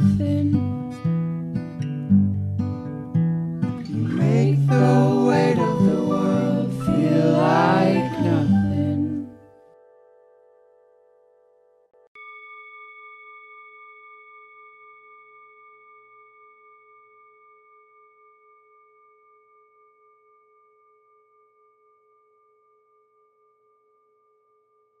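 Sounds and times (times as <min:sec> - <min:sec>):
singing bowl ringing: 0:12.2 - 0:25.0.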